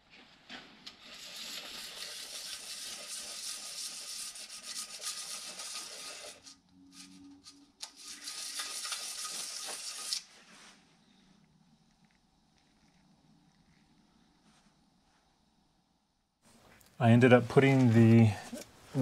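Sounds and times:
metal rasping on sanding belt: 1.0s - 7.2s, 7.8s - 10.3s.

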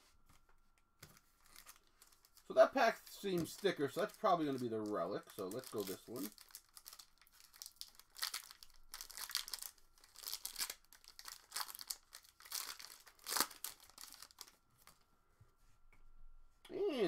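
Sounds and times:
foil wrapper tearing and crinkling: 1.4s - 2.5s, 3.1s - 15.0s.

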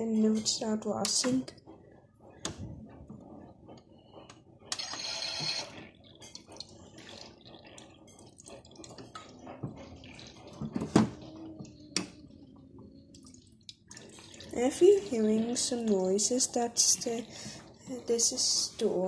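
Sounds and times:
water trickling and dripping: 6.0s - 17.8s.

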